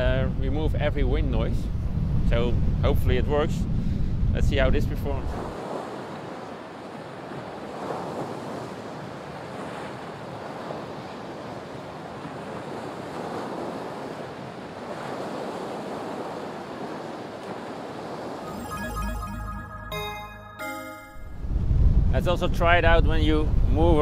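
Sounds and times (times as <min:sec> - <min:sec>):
wind: 0:00.0 - 0:24.0
waves washing on shore: 0:05.3 - 0:18.8.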